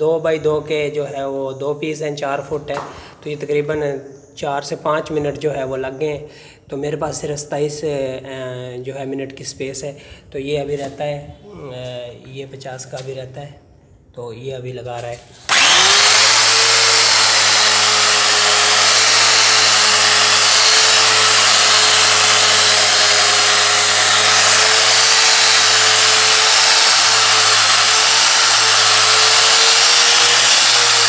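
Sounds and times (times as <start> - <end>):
angle grinder grinding marble: 15.4 - 31.0.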